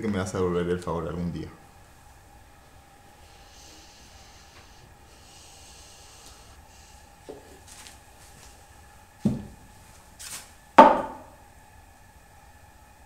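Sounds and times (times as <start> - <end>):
faint steady hum: 0.0 - 13.0
dull knocks: 9.2 - 9.6, 10.8 - 11.3.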